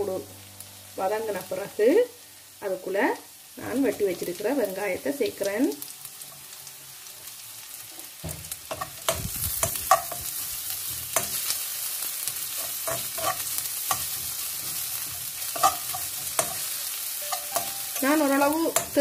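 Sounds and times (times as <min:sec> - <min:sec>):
onions sizzling in a wok: 0:00.0 - 0:19.0
metal spoon scraping a pan: 0:08.7 - 0:19.0.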